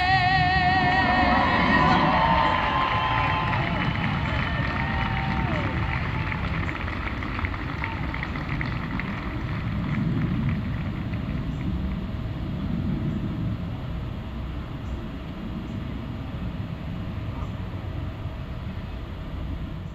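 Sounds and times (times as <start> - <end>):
crowd noise: 0.0 - 11.5
low rumble: 0.0 - 19.9.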